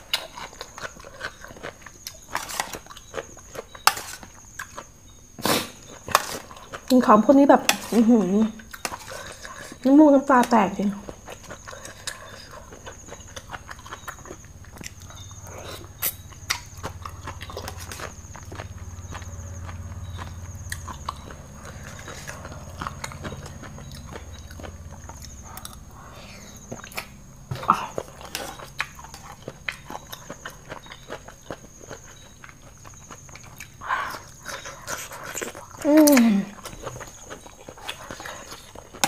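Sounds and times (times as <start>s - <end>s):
chewing mouth sounds: 11.0s - 39.0s.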